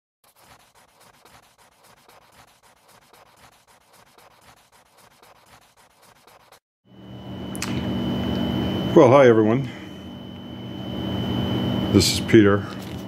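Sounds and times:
pencil scratching on paper: 0.2s - 6.6s.

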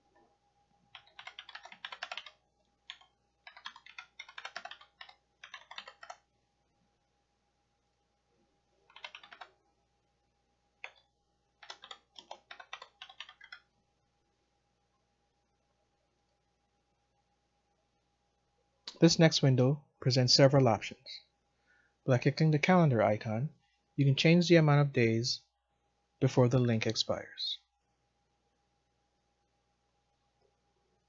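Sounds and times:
typing on computer keyboard: 0.9s - 6.2s, 8.9s - 9.5s, 10.8s - 13.7s.

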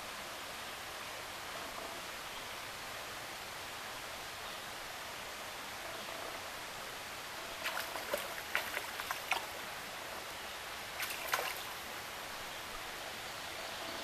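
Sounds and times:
stream flowing: 0.0s - 14.0s
sharp splashes in shallow water: 7.6s - 10.3s, 10.9s - 11.9s.

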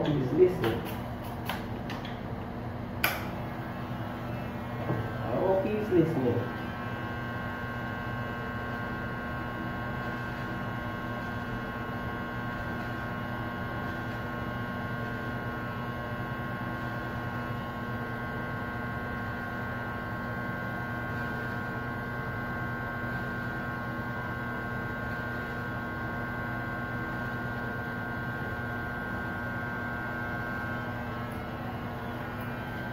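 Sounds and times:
electric hair clippers buzzing: 3.0s - 32.9s.

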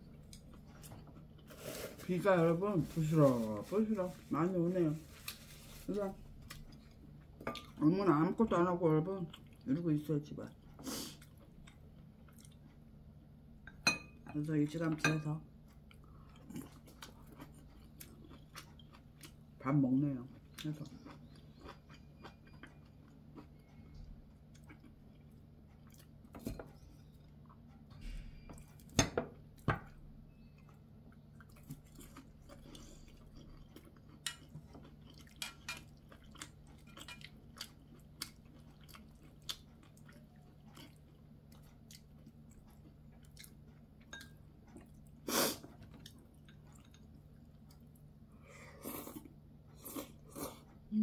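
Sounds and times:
quiet chewing: 9.2s - 9.8s, 10.5s - 13.7s, 15.5s - 19.6s, 20.2s - 28.9s, 29.5s - 50.9s.

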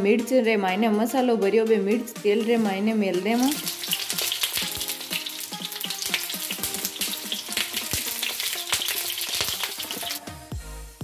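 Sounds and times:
frying in hot oil: 3.3s - 10.2s.

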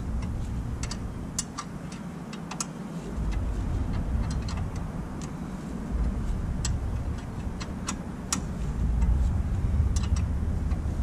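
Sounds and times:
steady low rumble: 0.0s - 11.0s
light clicks of hands on wiring: 0.2s - 5.4s.

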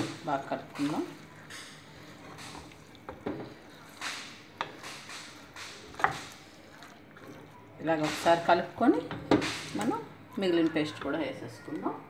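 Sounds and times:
spatula tapping pan: 0.0s - 6.4s
spatula stirring thick curry: 0.0s - 8.7s.

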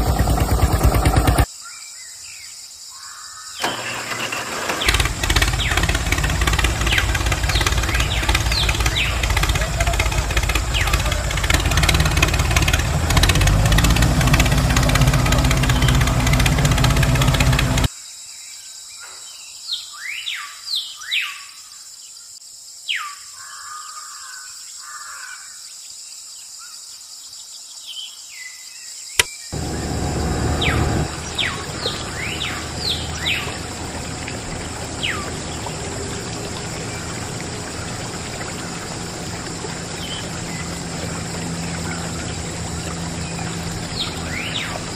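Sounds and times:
birds chirping: 3.0s - 17.9s, 29.3s - 44.9s.

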